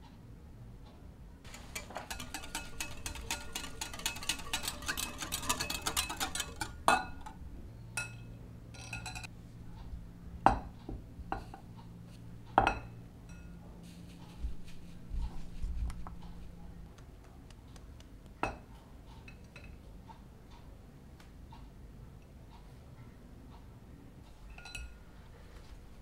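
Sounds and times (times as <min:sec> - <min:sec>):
metal sieve clinking on glass: 0:01.5 - 0:07.4, 0:08.0 - 0:09.3, 0:24.5 - 0:25.0
whisk clicking against glass bowl: 0:01.5 - 0:07.4
metal and glass clinks: 0:08.8 - 0:09.3.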